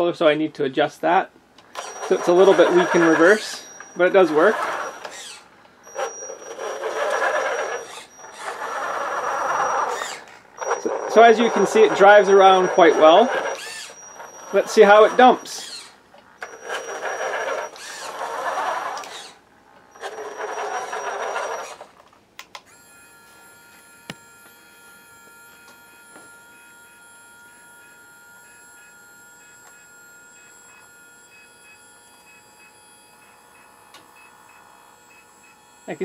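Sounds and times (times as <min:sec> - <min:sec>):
servo thin whine: 0:01.6 - 0:36.0
electric motor whirring: 0:01.7 - 0:22.0, 0:22.6 - 0:36.0
clicks: 0:18.9 - 0:22.7.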